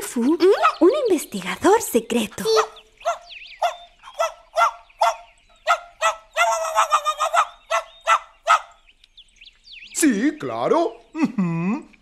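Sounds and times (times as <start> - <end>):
cartoon dog barking: 2.4 - 8.7.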